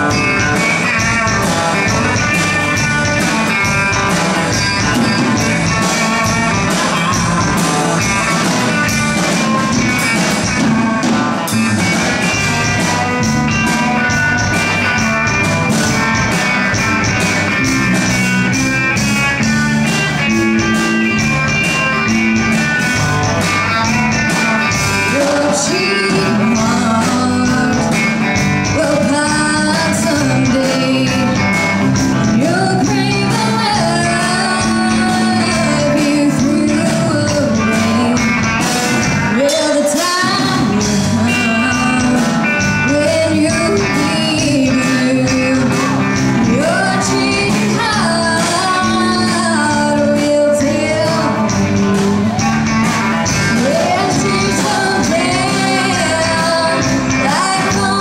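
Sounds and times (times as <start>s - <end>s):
live band playing: 0.0s - 58.0s
woman singing into microphone: 25.0s - 28.0s, 28.6s - 31.4s, 32.2s - 38.5s, 39.3s - 52.4s, 53.5s - 58.0s.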